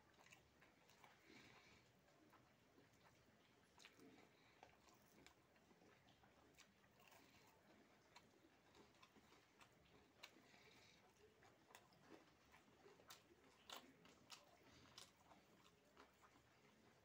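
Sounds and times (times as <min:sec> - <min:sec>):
chewing: 0:00.0 - 0:17.0.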